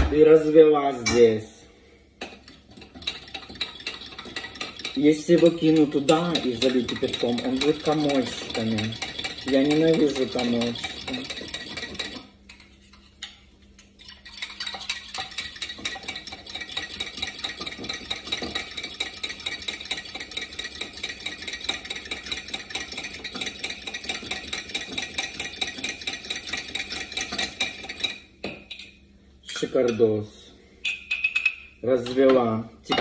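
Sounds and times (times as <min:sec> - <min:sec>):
spoon stirring clicking in cup: 0:02.2 - 0:28.9, 0:30.9 - 0:32.3.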